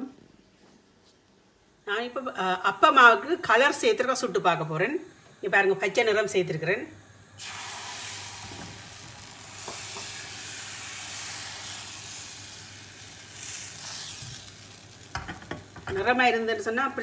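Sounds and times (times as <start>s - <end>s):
batter sizzling in a hot pan: 7.4s - 17.0s.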